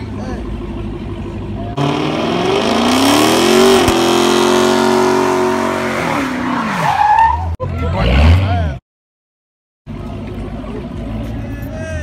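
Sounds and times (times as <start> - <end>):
car engine revving: 1.6 - 6.8.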